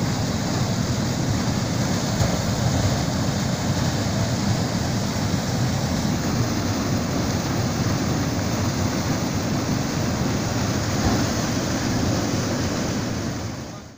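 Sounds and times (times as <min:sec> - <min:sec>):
water rushing over weir: 0:00.0 - 0:13.9.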